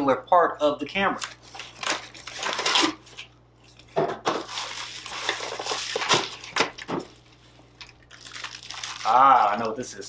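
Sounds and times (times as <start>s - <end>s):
plastic packaging crinkling: 1.2s - 3.3s, 4.2s - 10.0s.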